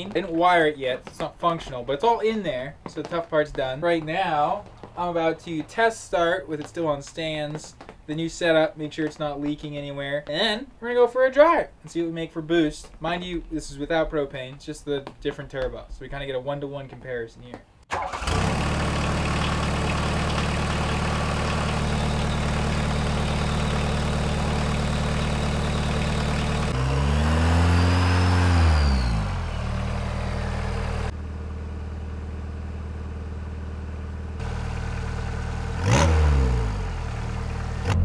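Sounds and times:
diesel engine idling and revving: 0:18.0 - 0:38.0.

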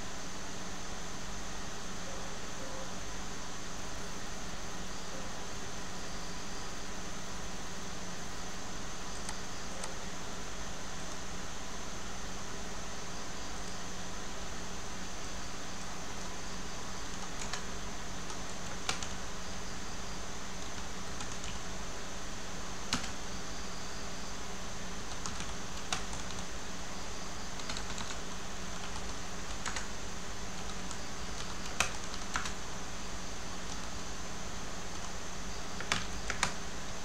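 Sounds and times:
background hum and hiss: 0:00.0 - 0:37.0
computer keyboard keystrokes: 0:09.2 - 0:10.0, 0:17.1 - 0:19.2, 0:20.6 - 0:21.6, 0:22.9 - 0:23.2, 0:25.1 - 0:26.5, 0:27.6 - 0:29.9, 0:30.6 - 0:32.6, 0:33.6 - 0:34.0, 0:35.8 - 0:36.6.

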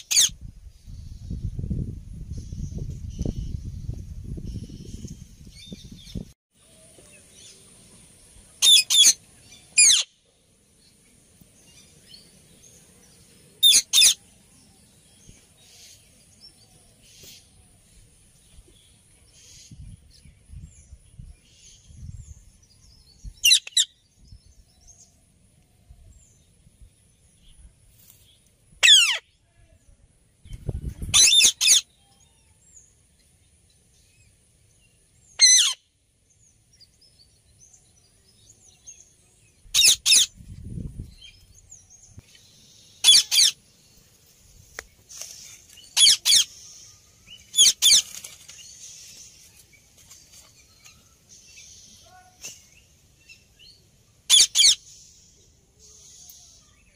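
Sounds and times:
parakeet screeching calls: 0:00.0 - 0:00.3, 0:08.6 - 0:09.2, 0:09.8 - 0:10.1, 0:13.6 - 0:14.2, 0:23.4 - 0:23.9, 0:28.8 - 0:29.2, 0:31.1 - 0:31.8, 0:35.4 - 0:35.8, 0:39.8 - 0:40.3, 0:43.0 - 0:43.6, 0:46.0 - 0:46.5, 0:47.6 - 0:48.0, 0:54.3 - 0:54.8.

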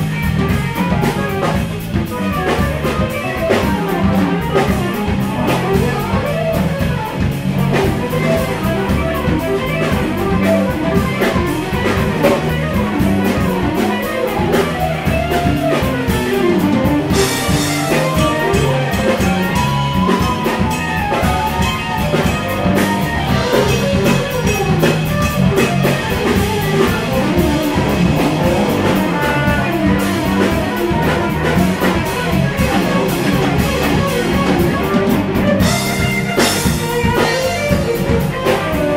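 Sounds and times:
drum kit: 0:00.0 - 0:38.9
electric bass: 0:00.0 - 0:38.9
electric guitar: 0:00.0 - 0:38.9
keyboards: 0:00.0 - 0:38.9.

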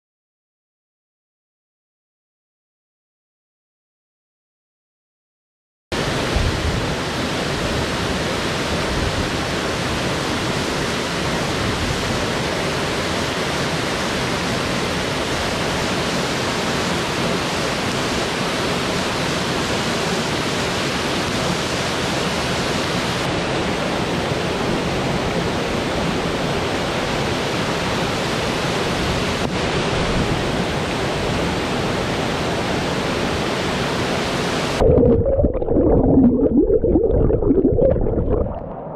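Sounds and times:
waterfall rushing into stream: 0:06.0 - 0:38.9.

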